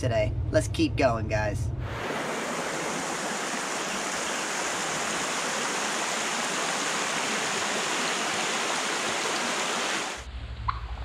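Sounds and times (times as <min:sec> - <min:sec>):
mountain creek water running: 0:01.9 - 0:10.2.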